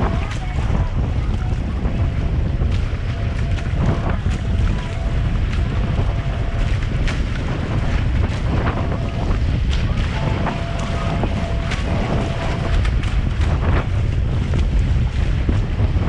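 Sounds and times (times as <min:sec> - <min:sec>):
water rushing along hulls: 0:00.0 - 0:16.0
wind buffeting microphone: 0:00.0 - 0:16.0.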